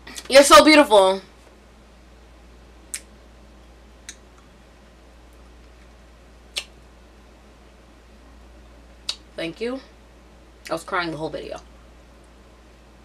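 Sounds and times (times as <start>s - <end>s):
low steady hum: 0.0s - 13.0s
mouth clicks: 2.9s - 3.1s, 4.0s - 4.5s, 6.5s - 6.8s, 9.0s - 9.2s
lip smacks and bites: 6.5s - 6.8s.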